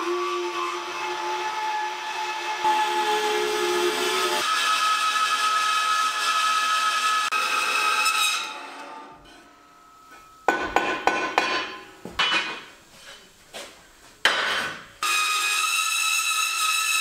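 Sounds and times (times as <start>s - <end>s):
bandsaw whining: 0.0s - 9.2s, 15.0s - 17.0s.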